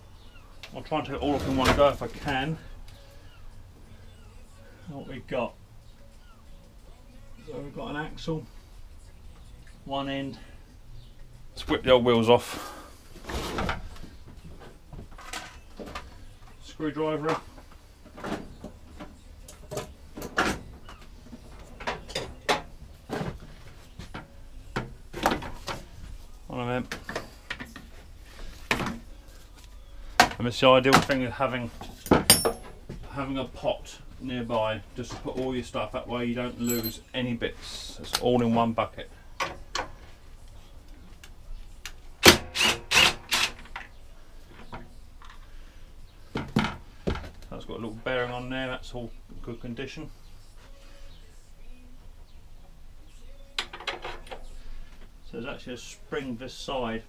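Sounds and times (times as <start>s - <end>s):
tools and metal parts clattering: 14.6s - 24.3s, 31.8s - 32.9s, 36.5s - 37.2s
hand tools clicking and knocking: 32.0s - 32.8s.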